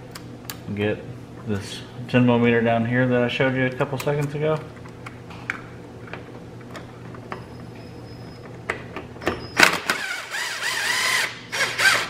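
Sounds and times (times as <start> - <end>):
cordless drill running in bursts: 9.8 - 12.0.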